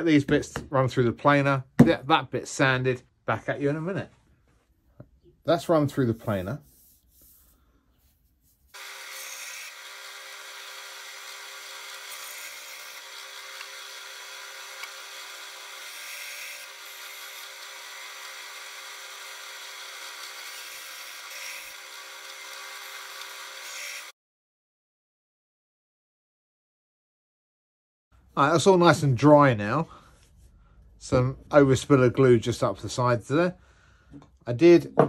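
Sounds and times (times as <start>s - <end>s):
bandsaw cutting wood: 8.7s - 24.2s.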